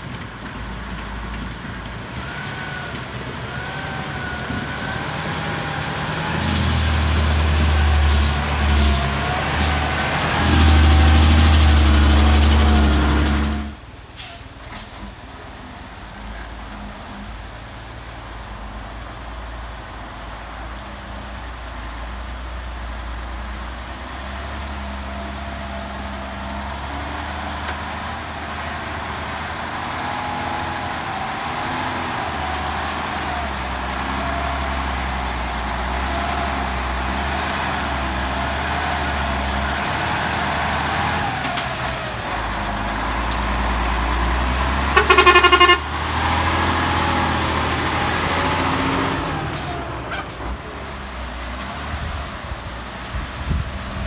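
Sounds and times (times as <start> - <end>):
truck engine passing by: 0.0 - 54.0
truck horn blast: 12.4 - 13.8, 44.8 - 46.2.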